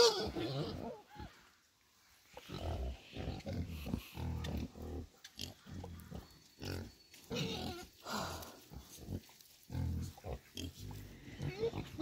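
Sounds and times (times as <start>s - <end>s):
pigs grunting: 2.4s - 7.9s, 8.5s - 12.0s.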